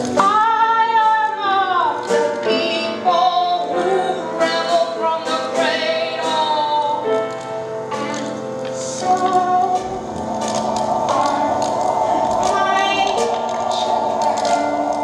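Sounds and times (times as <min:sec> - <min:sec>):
piano accompaniment: 0:00.0 - 0:15.0
woman singing long notes: 0:11.1 - 0:15.0.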